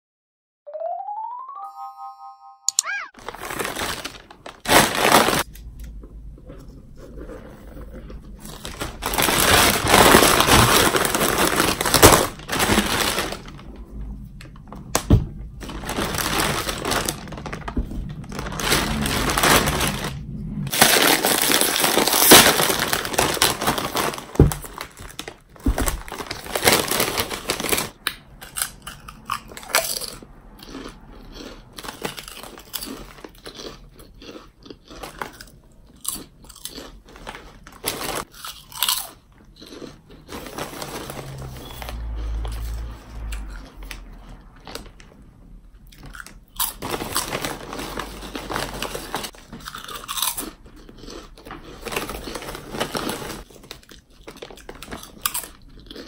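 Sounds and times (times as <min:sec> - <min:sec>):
plastic bag rustling: 0:03.2 - 0:05.5, 0:07.6 - 0:14.0, 0:14.6 - 0:28.0, 0:37.1 - 0:38.3, 0:40.3 - 0:42.8, 0:46.6 - 0:49.8, 0:51.8 - 0:55.2
potato chip crunch: 0:03.2 - 0:05.8, 0:08.0 - 0:13.7, 0:15.5 - 0:45.1, 0:45.8 - 0:56.0.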